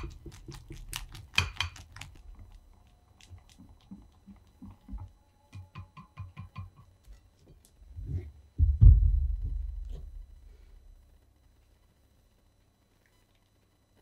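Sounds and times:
heavy low thump: 8.6 - 10.3.

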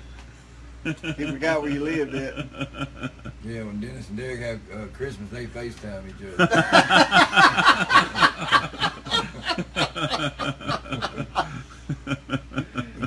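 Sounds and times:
men laughing: 0.8 - 3.4, 6.4 - 13.0.

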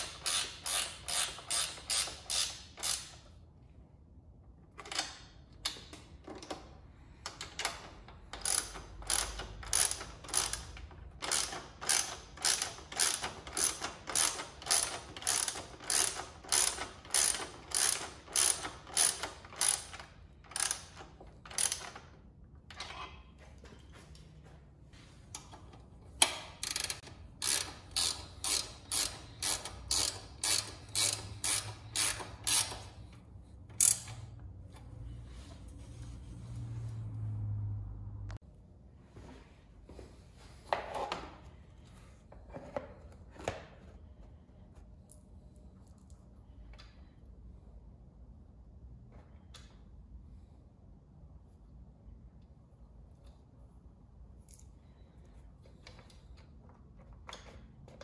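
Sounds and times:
ratchet wrench clicking: 0.0 - 3.3, 7.3 - 22.1, 26.2 - 34.4.

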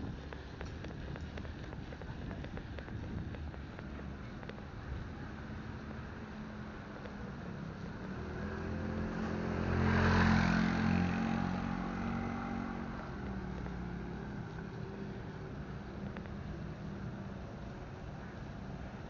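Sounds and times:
scooter engine passing by: 5.4 - 15.8.

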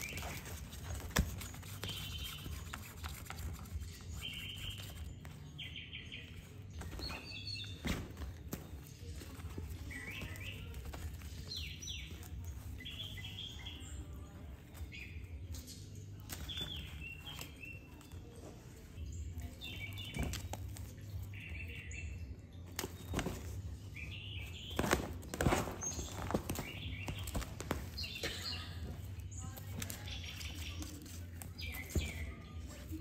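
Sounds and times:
fabric rustling: 22.8 - 33.0.

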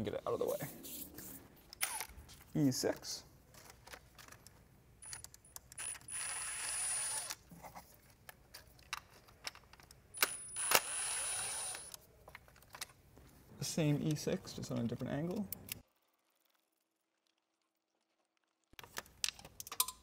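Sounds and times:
electric ratchet whining: 5.7 - 7.4, 10.2 - 12.0
metallic clicks and clinks: 19.2 - 20.0.

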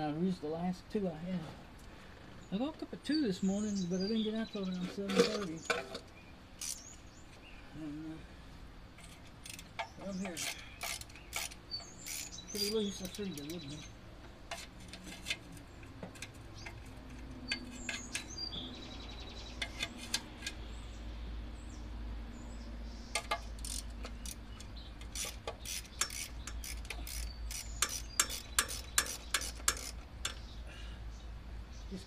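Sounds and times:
ratchet clicks: 6.6 - 6.9, 9.0 - 13.8, 23.1 - 30.4.

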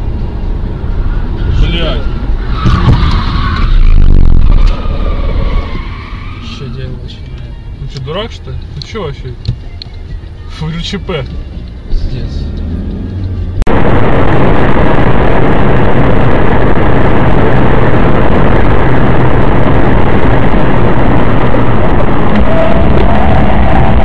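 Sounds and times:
low engine hum: 0.0 - 6.3, 7.0 - 24.0
tyre and wind roar inside car: 0.0 - 24.0.

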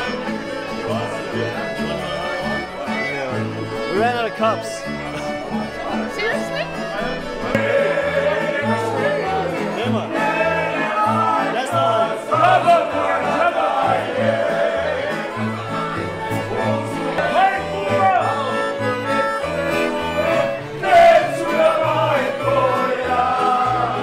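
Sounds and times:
accordion: 0.0 - 24.0
strummed string instruments: 0.0 - 24.0
voices singing: 0.0 - 24.0
plucked bass line: 6.6 - 20.5.

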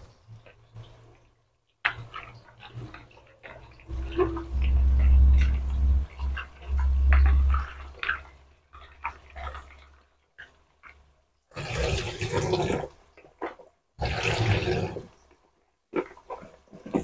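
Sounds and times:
low rumble: 3.8 - 8.4.

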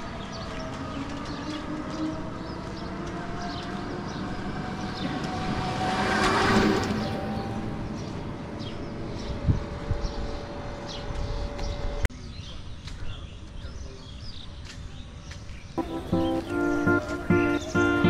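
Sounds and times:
auto-rickshaw engine passing by: 0.0 - 11.8.

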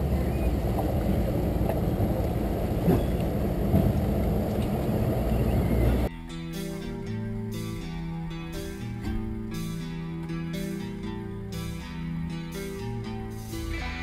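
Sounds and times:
guitar music: 5.8 - 14.0.

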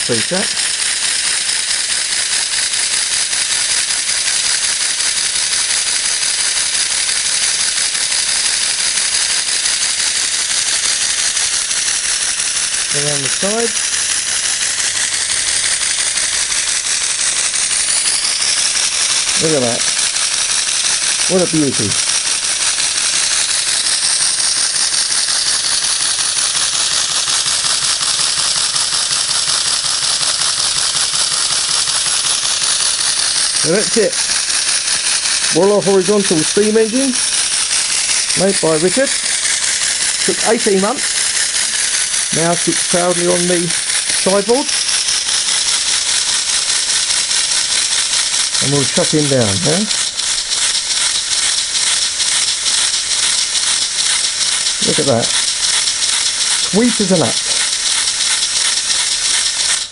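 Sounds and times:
model steam engine hissing: 0.0 - 59.9
continuous air hiss: 32.4 - 59.9.

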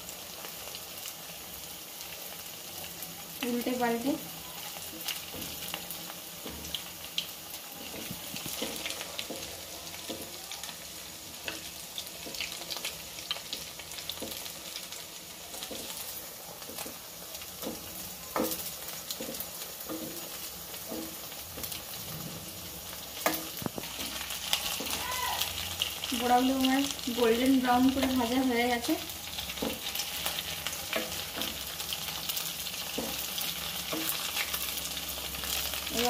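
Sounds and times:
food deep-frying in oil: 0.0 - 36.0
metal spoon scraping a pan: 16.6 - 22.2.

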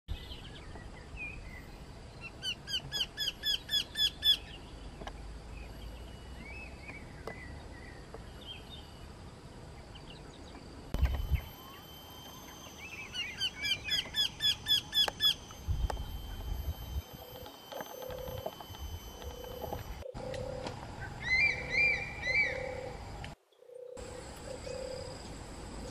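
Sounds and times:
eagle calling: 2.3 - 4.6, 11.0 - 23.0
faint bird calls: 19.5 - 25.2.

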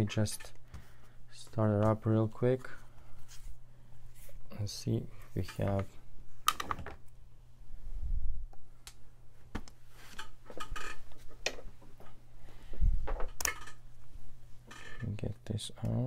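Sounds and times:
steady low hum: 0.0 - 16.0
laptop and tools clattering: 10.1 - 12.2, 13.0 - 13.8, 14.6 - 15.2.

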